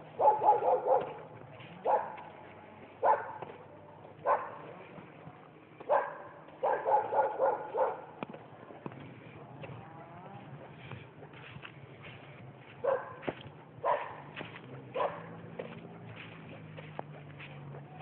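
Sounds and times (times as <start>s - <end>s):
dog barking: 0.0s - 2.3s, 3.0s - 3.5s, 4.2s - 4.7s, 5.9s - 8.1s, 12.8s - 15.4s.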